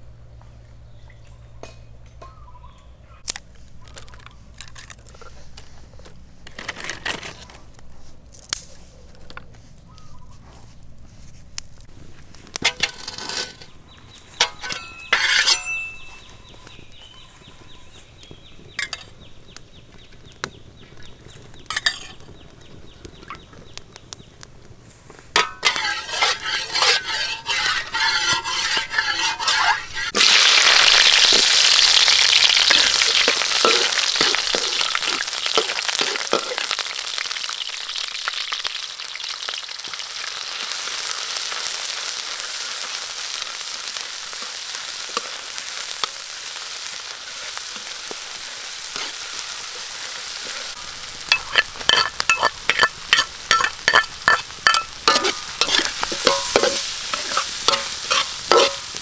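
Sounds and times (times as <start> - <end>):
clinks of pots and utensils: 1.2 - 2.6, 12.6 - 13.7, 14.4 - 16.3, 18.8 - 19.2, 21.7 - 22.3, 25.4 - 30.2, 32.7 - 36.7, 51.3 - 58.9
food sizzling in hot oil: 25.3 - 59.0.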